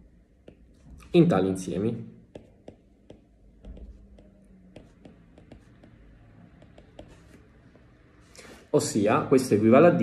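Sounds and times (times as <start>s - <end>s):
stylus tapping on glass screen: 0.4s - 0.8s, 2.3s - 7.2s.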